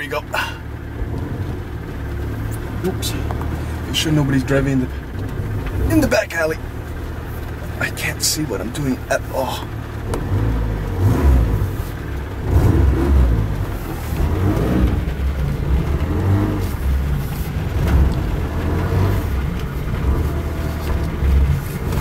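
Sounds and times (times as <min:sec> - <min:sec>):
car engine at low revs: 0:00.0 - 0:22.0.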